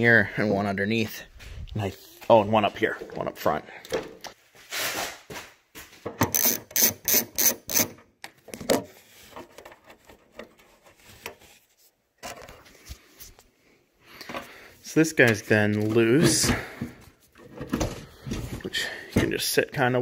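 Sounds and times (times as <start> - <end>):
hand ratchet clicking: 6.2 - 8.0.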